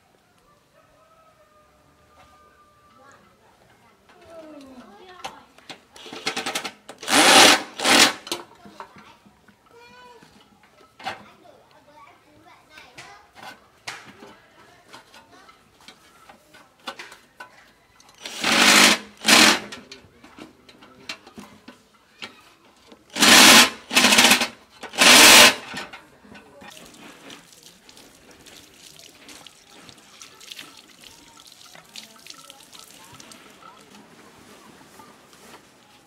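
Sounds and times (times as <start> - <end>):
cordless drill on sheet metal: 6.0 - 8.4, 18.2 - 19.7, 23.1 - 25.8.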